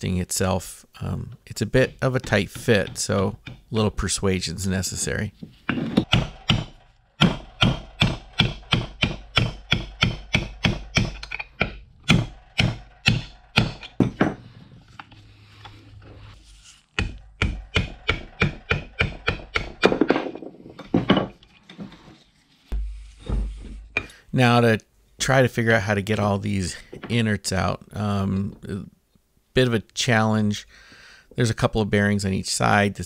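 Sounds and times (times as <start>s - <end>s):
hammer striking metal: 6.0s - 14.4s, 17.0s - 20.2s.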